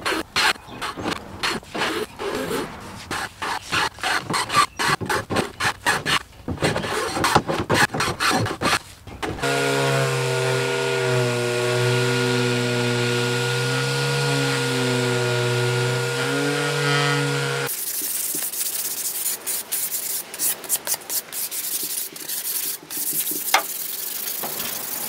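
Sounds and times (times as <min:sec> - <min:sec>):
hand plane shaving wood: 0:00.0 - 0:23.6
orbital sander running: 0:09.4 - 0:17.7.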